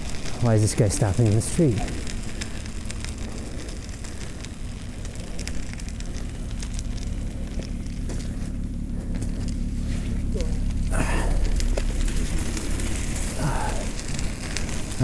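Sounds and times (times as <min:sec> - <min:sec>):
studded bicycle tyres on slush: 0:00.0 - 0:15.0.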